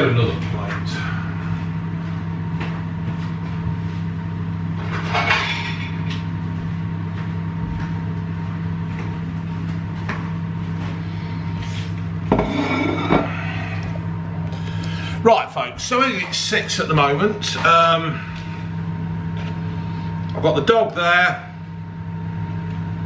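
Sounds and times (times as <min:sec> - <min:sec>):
microwave oven humming: 0:00.0 - 0:23.0
plates clattering: 0:12.3 - 0:13.3.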